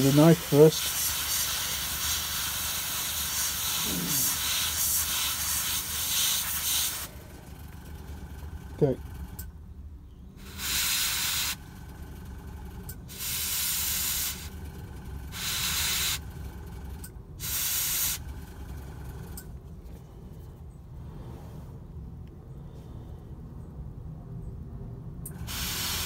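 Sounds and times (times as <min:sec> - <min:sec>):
airbrush spraying: 0:00.0 - 0:07.1, 0:10.4 - 0:11.6, 0:25.4 - 0:26.0.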